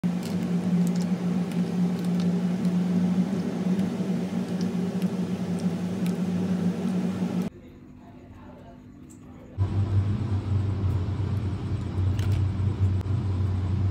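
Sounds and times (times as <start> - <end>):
low motor hum: 0.0 - 7.5, 9.6 - 13.9.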